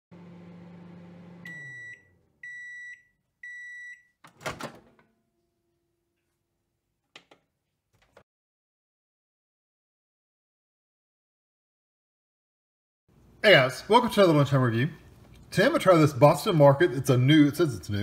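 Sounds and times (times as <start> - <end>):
microwave oven humming: 0.1 - 2.8
microwave beeps: 1.0 - 4.2.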